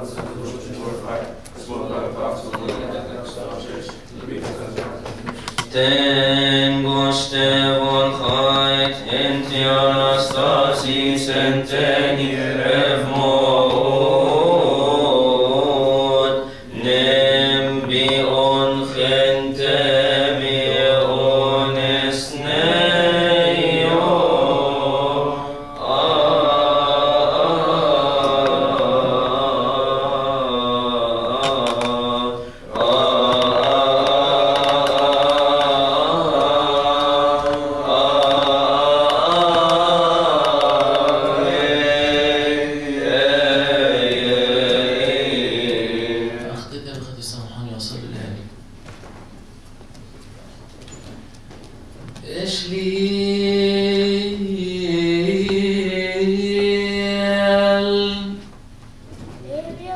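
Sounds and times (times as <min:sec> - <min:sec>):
men singing liturgical chant: 0:05.5 - 0:46.8, 0:52.2 - 0:58.4.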